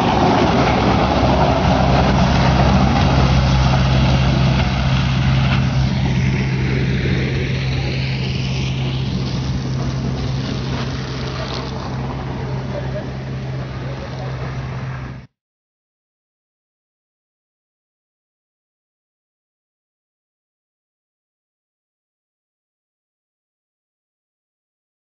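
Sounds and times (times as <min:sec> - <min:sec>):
broad rushing noise: 0:00.0 - 0:15.3
diesel engine running: 0:00.0 - 0:15.3
whoosh: 0:00.0 - 0:15.3.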